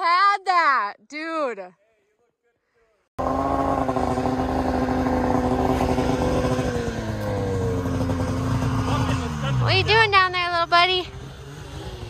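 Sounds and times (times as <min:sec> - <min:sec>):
snowmobile engine revving: 0:03.2 - 0:12.0.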